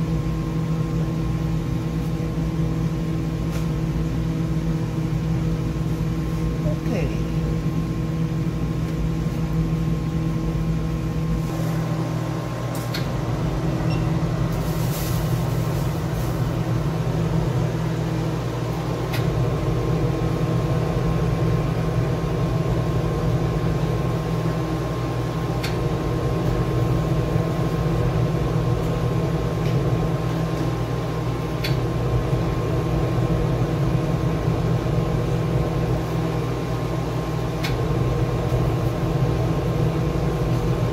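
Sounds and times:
low machine hum: 0:00.0 - 0:40.9.

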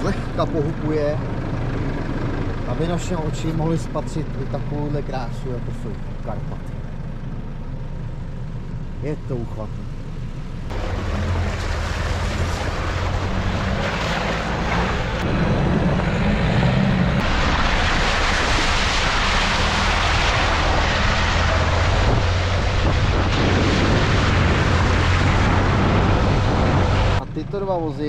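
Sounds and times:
road and tyre noise: 0:00.0 - 0:28.0
vehicle engine droning: 0:00.0 - 0:28.0.

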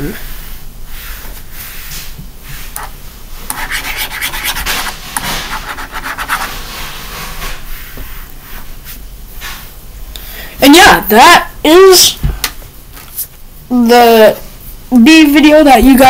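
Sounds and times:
stylus scratching on drawing tablet: 0:02.8 - 0:06.6.

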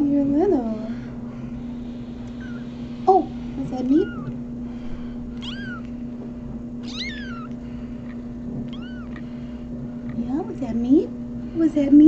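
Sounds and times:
kitten mewing: 0:02.2 - 0:02.8, 0:03.8 - 0:04.4, 0:05.3 - 0:06.0, 0:06.8 - 0:10.3.

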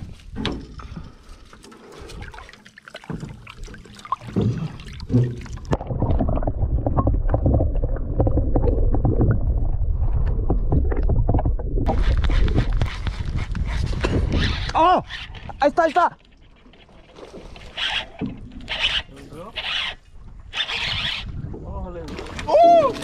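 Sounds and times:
water sloshing and splashing: 0:00.0 - 0:23.0
muffled rush of water: 0:21.6 - 0:23.0.

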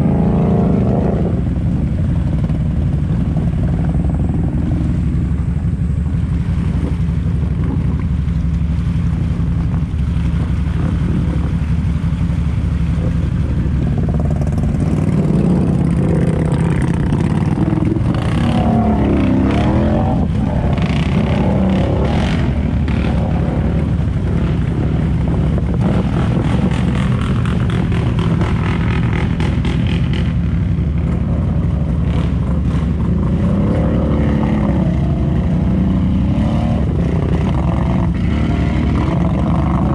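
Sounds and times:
water splashing: 0:00.0 - 0:39.9
atv engine revving under load: 0:12.8 - 0:30.4, 0:31.0 - 0:39.9.

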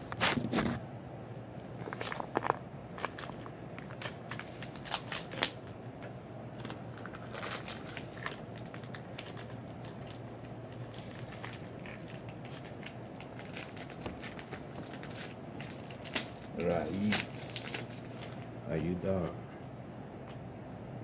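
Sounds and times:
steady low hum: 0:00.0 - 0:21.0
crackling and rustling: 0:01.5 - 0:05.8, 0:06.5 - 0:18.6.

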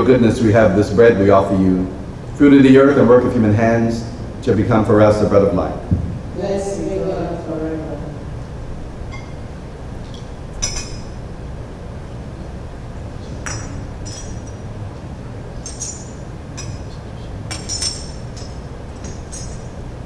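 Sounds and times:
glass and metal clinking: 0:09.1 - 0:09.4, 0:10.1 - 0:11.3, 0:13.3 - 0:14.7, 0:15.5 - 0:19.8.

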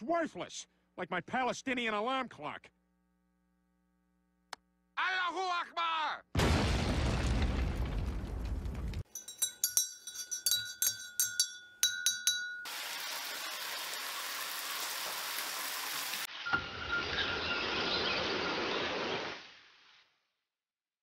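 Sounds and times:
cartoon explosion rumble: 0:06.4 - 0:09.0
sharp ringing clinks: 0:09.1 - 0:12.8.

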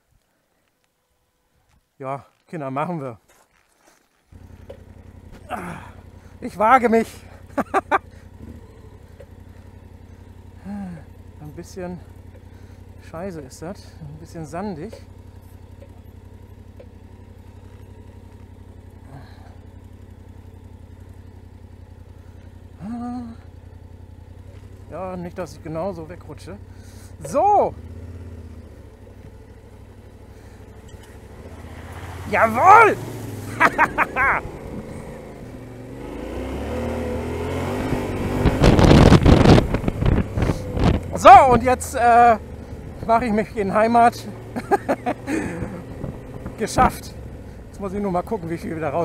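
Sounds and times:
motorcycle engine idling: 0:04.0 - 0:49.0.

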